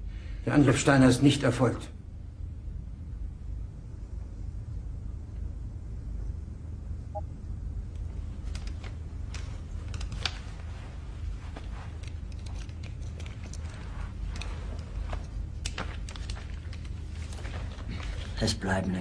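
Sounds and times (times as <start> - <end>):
steady low rumble: 0.0 - 18.6
handling clicks and rustles: 8.0 - 19.0.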